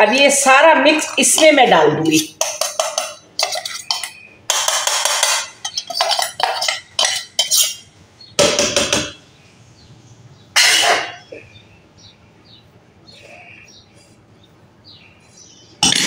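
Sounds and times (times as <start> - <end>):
spoon scraping metal jar: 1.0 - 7.9
metal jar knocking against pan: 2.4 - 7.7.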